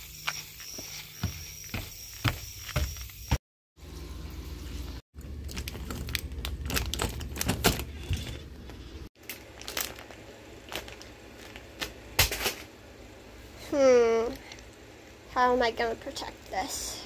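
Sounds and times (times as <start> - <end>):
plastic candy bag crinkling: 5.2 - 8.4, 9.2 - 11.9.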